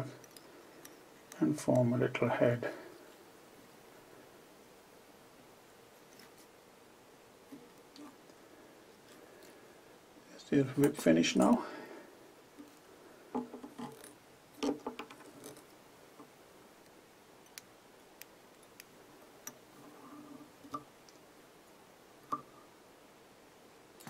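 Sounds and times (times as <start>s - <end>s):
clicks and taps at fly-tying vise: 13.3s - 16.3s.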